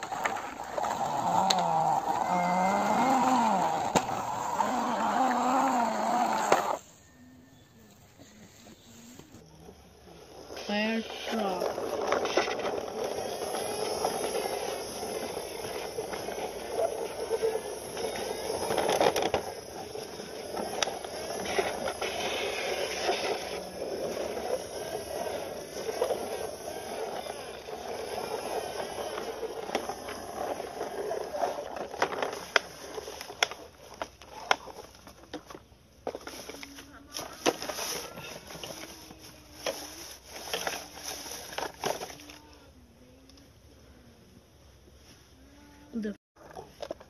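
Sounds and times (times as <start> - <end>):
plastic toys knocking together: 0.0 - 6.8, 11.3 - 26.6, 27.7 - 38.8
toy wheels squealing on concrete: 0.0 - 7.0, 9.5 - 35.2, 36.2 - 42.2.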